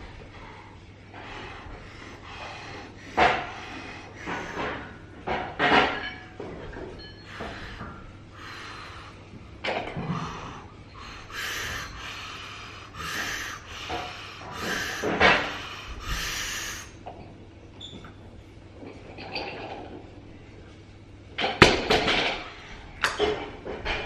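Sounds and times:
man breathing forcefully: 0:00.0 - 0:05.6, 0:07.1 - 0:17.0.

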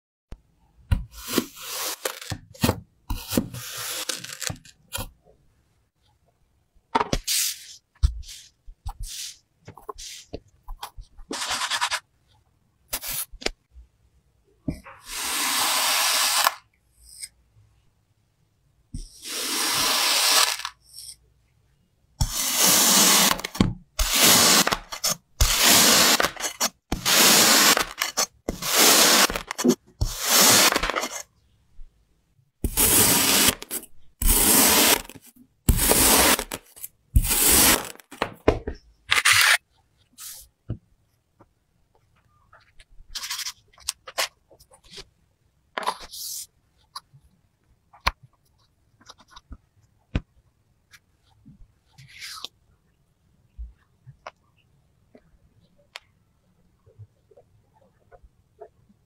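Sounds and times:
knife scraping kinetic sand: 0:01.1 - 0:05.1, 0:07.2 - 0:10.4, 0:12.9 - 0:13.4, 0:14.9 - 0:17.4, 0:19.0 - 0:21.2, 0:22.2 - 0:31.3, 0:32.6 - 0:38.0.

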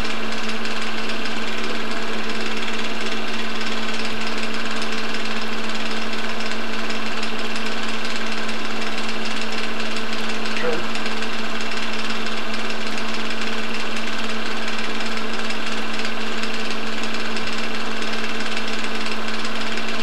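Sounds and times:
film projector clatter: 0:00.0 - 0:20.0
projector hum: 0:10.4 - 0:11.6.

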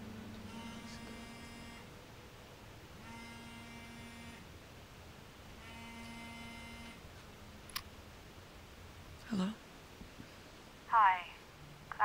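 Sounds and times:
phone vibrating buzz: 0:00.5 - 0:01.9, 0:03.0 - 0:04.5, 0:05.6 - 0:07.0.

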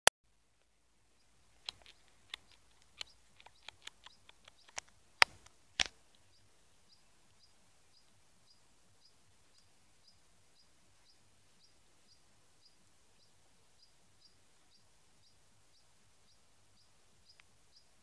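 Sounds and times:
small bird chirping: 0:01.1 - 0:18.0
sharp irregular clicks: 0:01.6 - 0:06.3.

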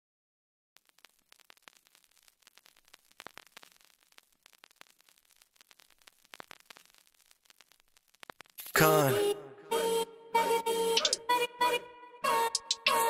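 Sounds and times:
faint crackling static: 0:00.8 - 0:09.3.

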